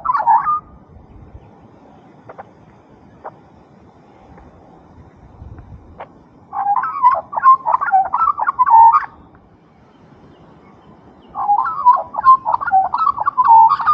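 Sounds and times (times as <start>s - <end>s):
magpie warbling: 0.0s - 0.7s, 6.5s - 9.1s, 11.4s - 13.9s.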